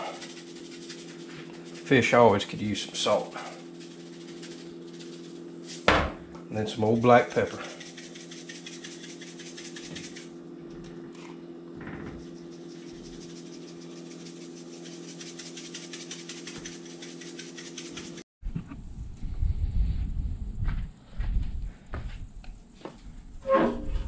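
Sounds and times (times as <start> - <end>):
pepper shaker rattling: 0.0 - 5.9, 6.8 - 10.3, 12.2 - 18.2
steady low hum: 0.0 - 24.0.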